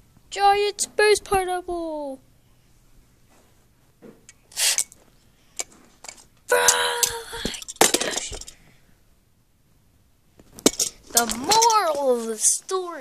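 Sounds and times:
child making hissing whoosh: 4.5 - 4.9
plastic toy cars clacking: 5.6 - 8.6, 10.6 - 12.3.

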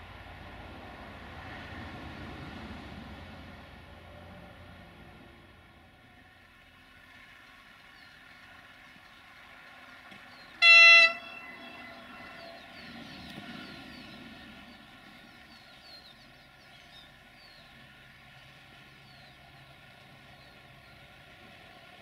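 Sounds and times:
diesel engines humming: 0.0 - 22.0
train horn toot: 10.6 - 13.3.

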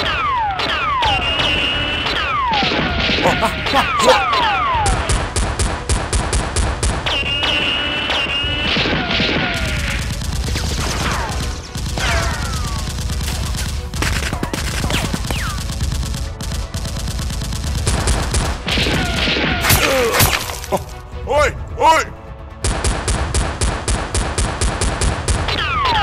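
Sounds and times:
gunfire bursts: 5.0 - 19.8.

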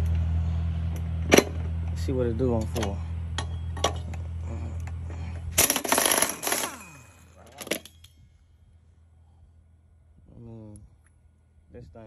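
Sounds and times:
low steady hum: 0.0 - 12.0
air impact wrench hammering: 5.5 - 6.9.

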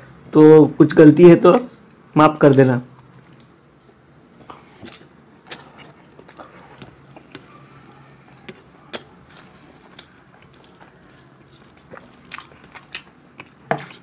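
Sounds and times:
chewing and mouth sounds: 2.9 - 14.0.

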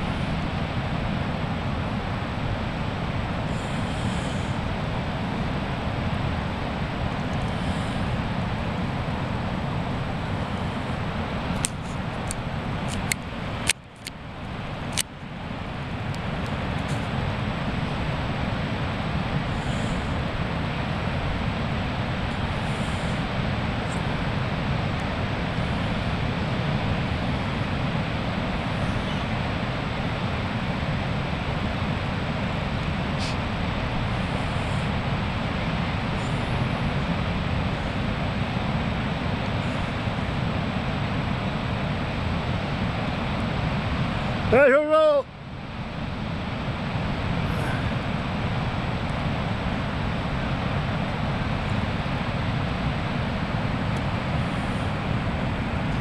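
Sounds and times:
wind buffeting microphone: 0.0 - 44.6
surf breaking on beach: 0.0 - 56.0.

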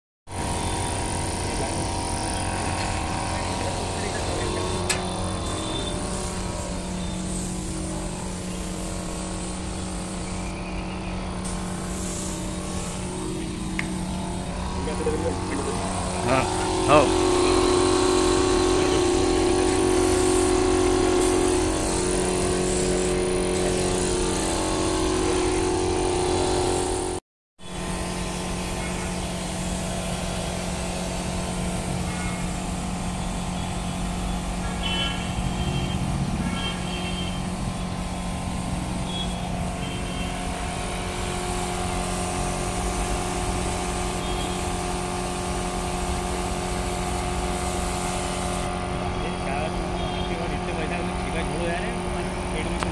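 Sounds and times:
spray gun hissing: 0.3 - 10.6, 11.4 - 27.2, 28.0 - 48.7
air compressor running: 0.3 - 52.9.

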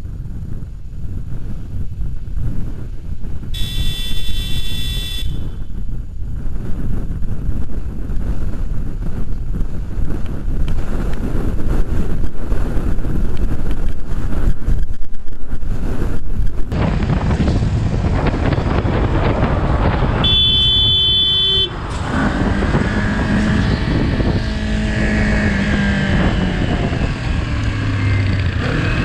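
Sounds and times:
wind rush over microphone: 0.0 - 29.0
motorcycle engine: 2.7 - 11.0, 16.7 - 29.0
horn sounding: 3.6 - 5.7, 20.2 - 26.3.

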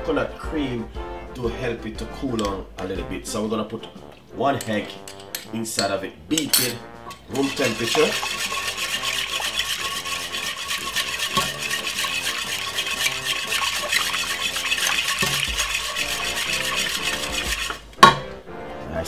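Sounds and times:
wire whisk clicking against pan: 7.4 - 18.2.

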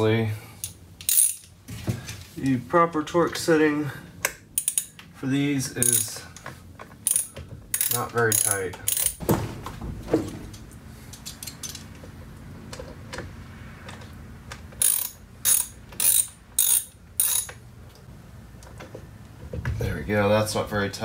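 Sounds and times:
hand ratchet clicking: 0.6 - 1.5, 4.2 - 5.0, 5.8 - 9.2, 14.8 - 17.6.

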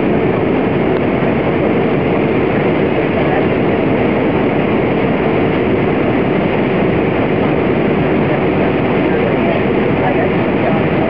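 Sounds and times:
airplane cabin roar: 0.0 - 11.0
jet engine: 0.0 - 11.0.

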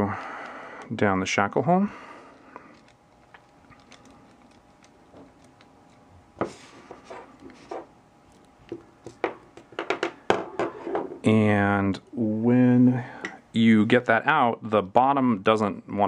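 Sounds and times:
tools set down on table: 9.2 - 11.2.

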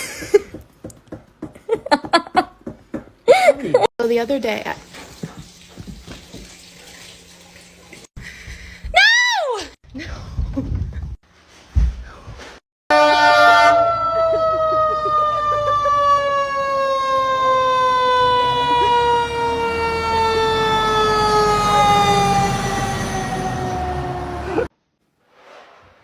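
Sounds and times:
fire engine siren wailing: 12.9 - 24.7.

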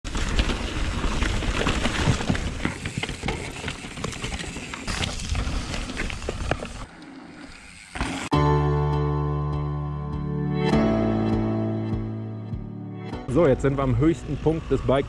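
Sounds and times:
mountain bike clattering: 0.1 - 8.3.

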